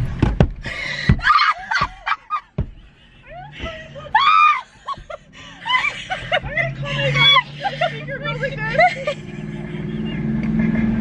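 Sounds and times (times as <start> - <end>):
sharp knocks: 0.0 - 2.8
young women laughing hysterically: 0.7 - 2.6, 3.2 - 9.9.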